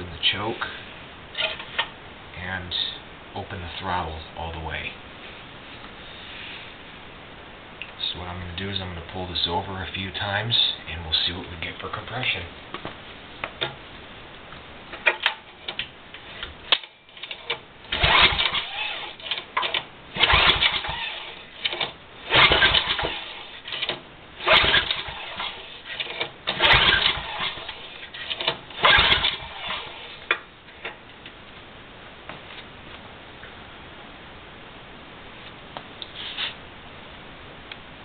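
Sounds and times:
recoil starter rope pulls: 0:16.4 - 0:30.3
engine cranking with a rasp: 0:16.7 - 0:30.2.

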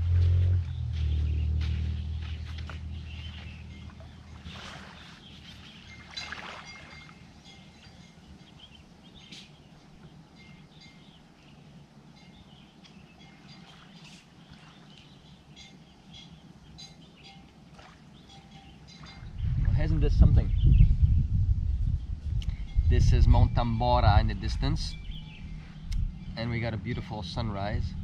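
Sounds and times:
faint bird chirps: 0:00.6 - 0:19.6.

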